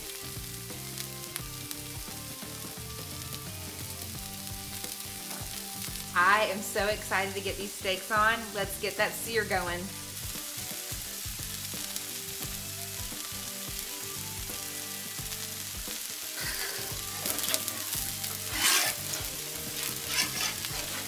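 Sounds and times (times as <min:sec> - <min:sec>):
oil and vegetables sizzling: 0:00.0 - 0:21.0
metal spatula on griddle: 0:02.6 - 0:06.2, 0:13.4 - 0:21.0.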